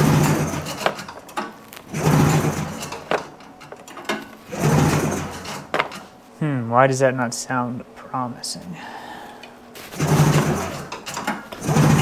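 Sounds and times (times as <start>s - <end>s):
two-stroke engine turning over: 0.0s - 1.1s, 1.9s - 3.0s, 4.5s - 5.6s, 10.0s - 11.0s, 11.6s - 12.0s
recoil starter pulls: 0.0s - 3.2s, 3.8s - 5.7s, 10.0s - 12.0s.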